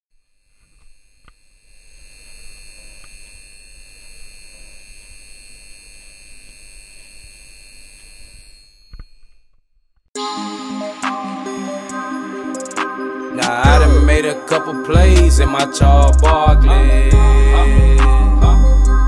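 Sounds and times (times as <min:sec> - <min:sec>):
light bulb electrical buzz: 0:00.1 - 0:10.1.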